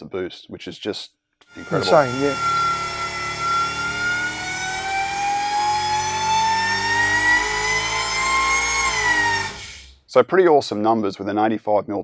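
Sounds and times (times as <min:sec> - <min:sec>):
supercharger whine: 0:01.5 - 0:09.9.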